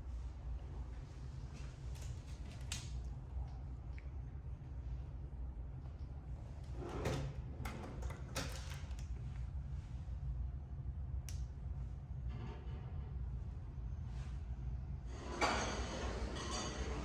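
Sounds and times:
drawer sliding: 6.7 - 8.3
low hum: 8.9 - 17.0.

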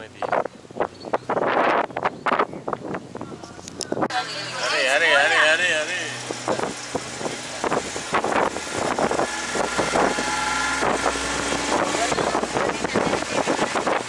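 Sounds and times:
wind noise on microphone: 0.0 - 14.0
vehicle engine running: 4.1 - 14.0.

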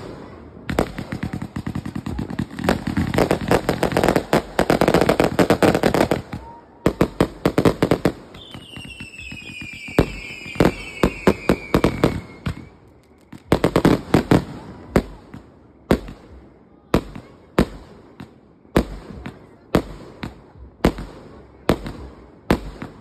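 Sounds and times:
fireworks bangs and crackles: 0.0 - 23.0
firework whistles falling in pitch: 8.3 - 13.5.

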